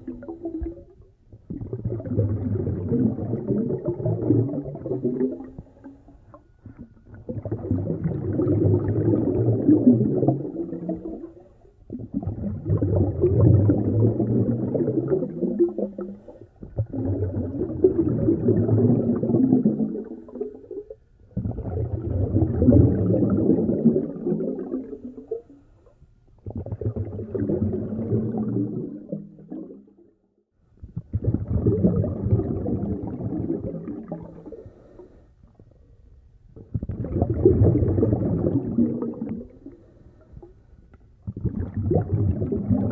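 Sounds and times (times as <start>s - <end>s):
heavy breathing through a snorkel: 34.4s - 35.4s.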